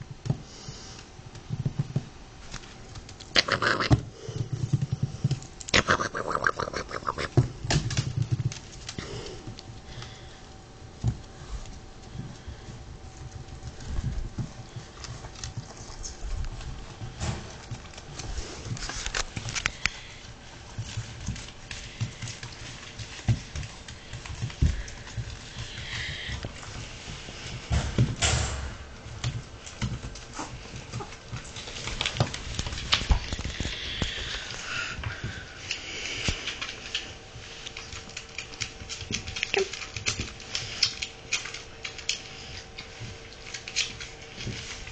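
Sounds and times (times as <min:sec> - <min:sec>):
puppy claws clicking on wood floor: 0:00.1 - 0:28.4, 0:29.0 - 0:44.9.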